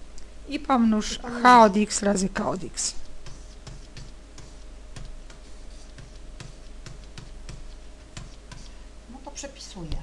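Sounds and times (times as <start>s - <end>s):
stylus tapping on drawing tablet: 3.2s - 8.7s.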